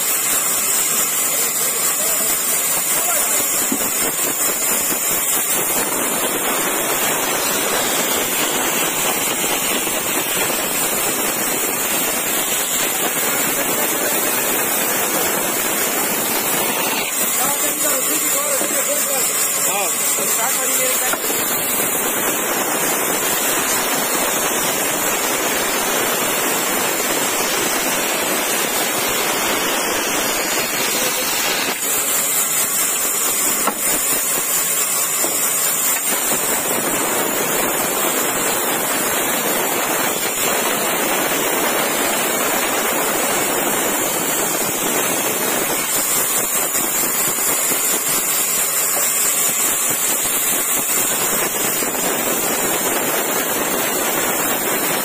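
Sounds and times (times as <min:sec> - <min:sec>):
band saw cutting wood: 0:00.0 - 0:22.5, 0:29.7 - 0:36.6.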